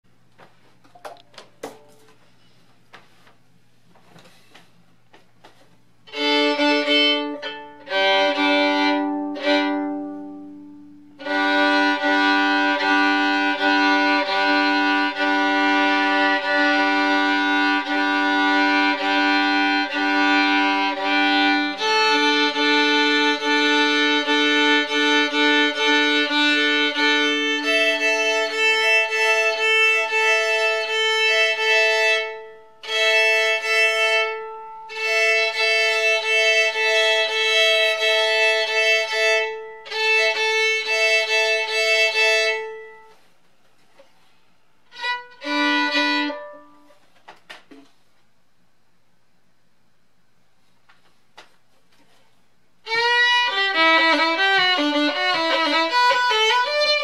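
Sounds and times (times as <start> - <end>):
fiddle bowed chords: 6.0 - 43.3, 44.8 - 47.0, 52.8 - 57.0
fiddle playing lively reel: 6.1 - 10.5, 11.2 - 43.0, 44.9 - 46.8, 52.8 - 57.0.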